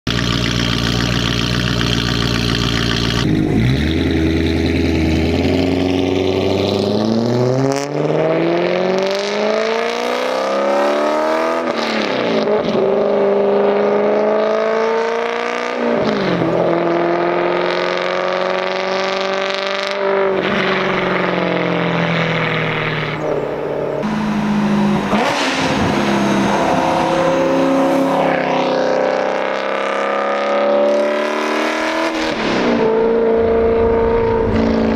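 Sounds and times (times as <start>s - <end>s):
car engine revving and accelerating: 0.1s - 34.9s.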